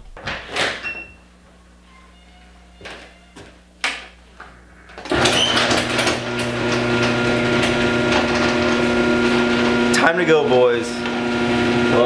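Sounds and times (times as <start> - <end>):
buzzing machine hum: 4.6 - 12.0
door shutting: 4.9 - 8.9.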